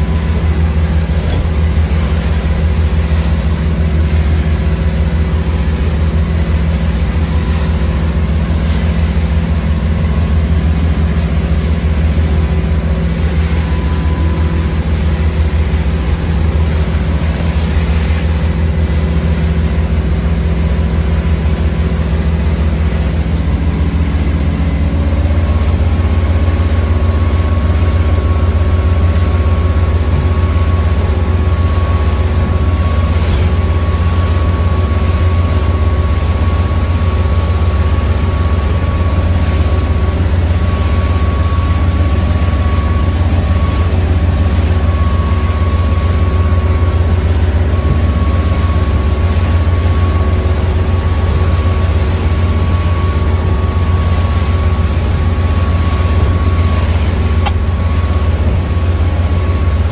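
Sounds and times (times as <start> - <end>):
boat engine drone: 0.0 - 59.9
high engine whine: 0.0 - 59.9.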